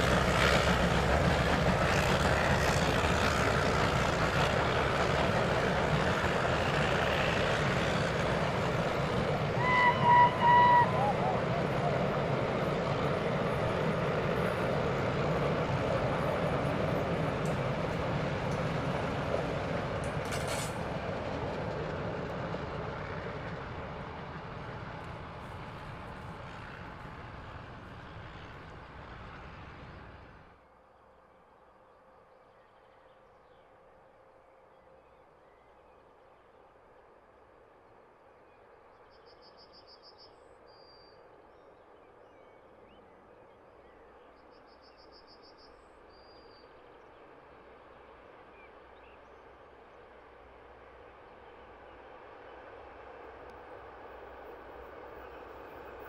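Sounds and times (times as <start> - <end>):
outdoor ambience: 0.0 - 56.0
train rumbling on rails: 0.0 - 56.0
faint bird twitter: 30.9 - 37.2, 38.2 - 50.2.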